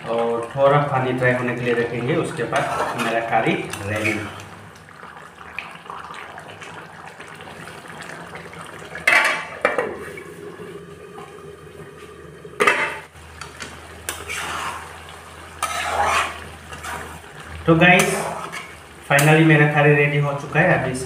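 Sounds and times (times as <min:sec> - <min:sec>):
curry bubbling: 0:00.0 - 0:20.9
metal spatula scraping pan: 0:02.5 - 0:04.4, 0:14.1 - 0:14.9, 0:15.6 - 0:17.2, 0:18.0 - 0:18.8.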